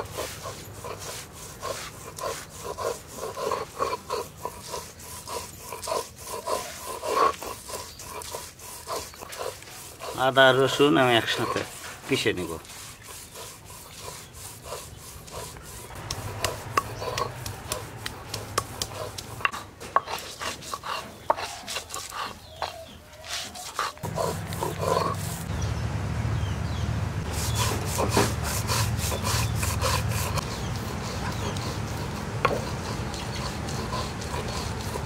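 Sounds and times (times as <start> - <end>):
grinding stone rubbing and scraping: 0.0 - 25.6, 27.2 - 35.0.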